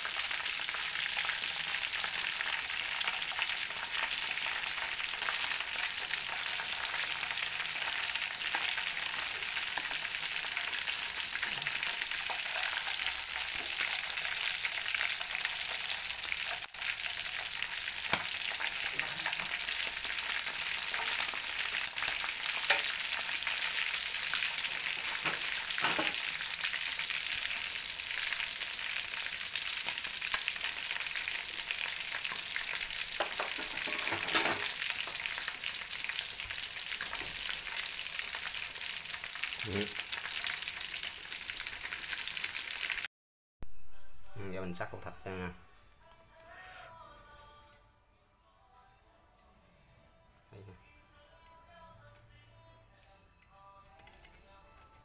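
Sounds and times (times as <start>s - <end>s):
meat frying in hot oil: 0.0s - 43.1s.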